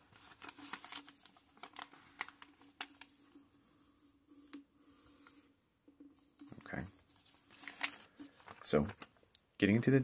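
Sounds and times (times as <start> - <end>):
paper crackling while folded: 0.0 - 3.8, 6.5 - 9.1.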